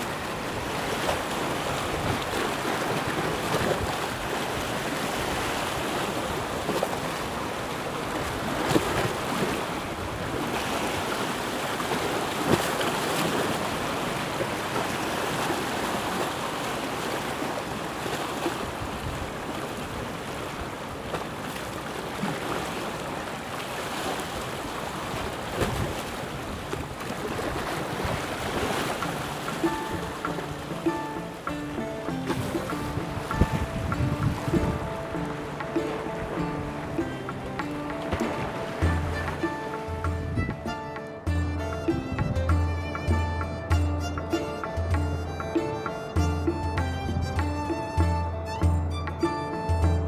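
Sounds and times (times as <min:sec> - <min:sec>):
wind on microphone: 0:00.0 - 0:21.2, 0:24.2 - 0:31.4, 0:32.2 - 0:37.5, 0:38.1 - 0:40.8, 0:41.8 - 0:43.3, 0:46.7 - 0:48.2
waves lapping against rocks: 0:00.0 - 0:43.1.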